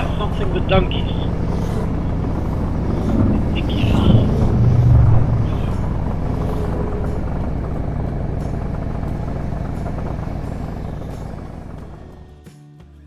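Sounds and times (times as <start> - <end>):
wind and road noise: 0.0 - 12.2
motorcycle engine running: 0.0 - 12.6.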